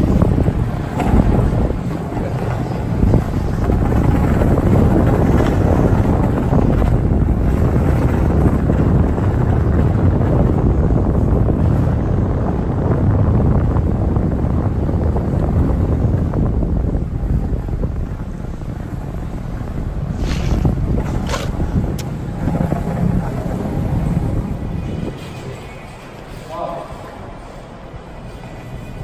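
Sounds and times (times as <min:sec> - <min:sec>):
skateboard wheels on concrete: 0:00.0 - 0:29.0
wind on microphone: 0:00.0 - 0:29.0.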